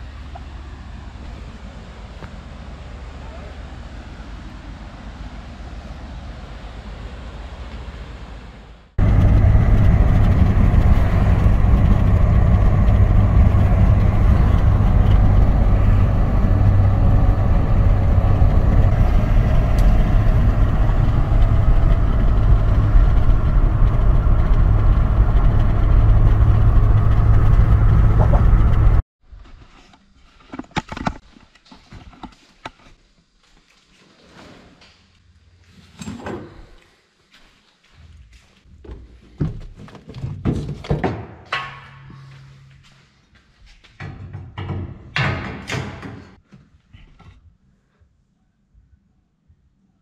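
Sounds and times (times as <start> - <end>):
car road and engine rumble: 0.0 - 29.0
knocks and clatters: 9.0 - 29.0, 38.8 - 42.2, 43.8 - 46.4.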